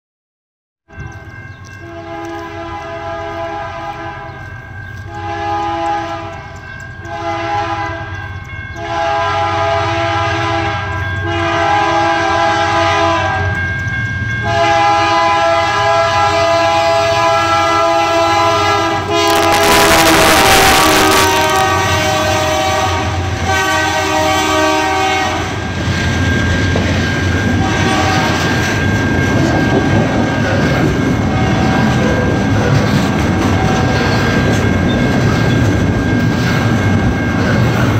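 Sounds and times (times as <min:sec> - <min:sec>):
locomotive air horn blasts: 0:01.8 - 0:04.3, 0:05.1 - 0:06.4, 0:07.1 - 0:08.1, 0:08.8 - 0:13.5, 0:14.4 - 0:25.6, 0:27.6 - 0:28.4.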